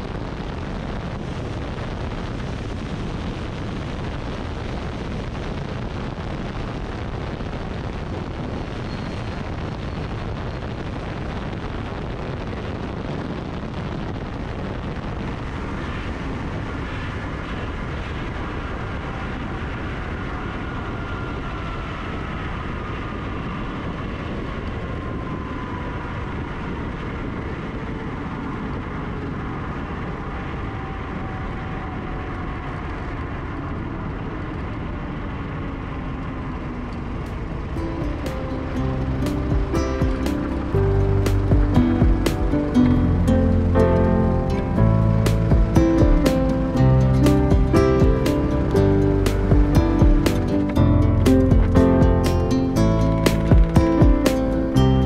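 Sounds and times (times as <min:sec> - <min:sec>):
airplane engine and propeller: 0:14.7 - 0:55.0
air rushing: 0:37.3 - 0:55.0.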